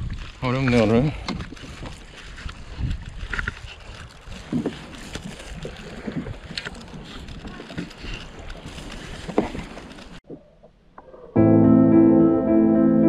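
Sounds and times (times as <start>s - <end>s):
wind on microphone: 0.0s - 0.4s, 1.2s - 10.2s
water lapping around kayak: 0.0s - 10.7s.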